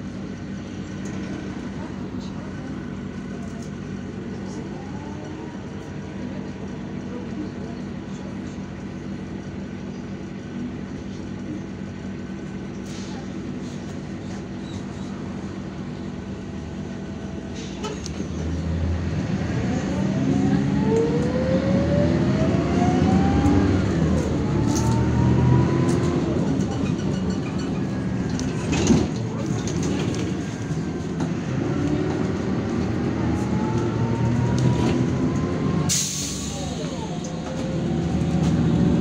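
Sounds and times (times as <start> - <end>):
bus diesel engine: 0.0 - 39.0
rising whine: 19.5 - 26.4.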